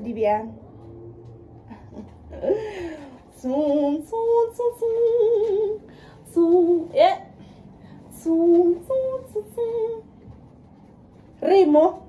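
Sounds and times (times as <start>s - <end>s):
woman singing unaccompanied: 3.2s - 10.5s, 11.3s - 12.0s.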